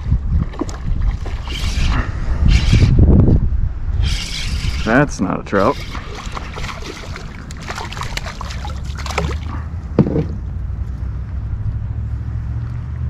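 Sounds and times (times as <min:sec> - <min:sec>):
fish splashing at water surface: 0:05.7 - 0:09.7.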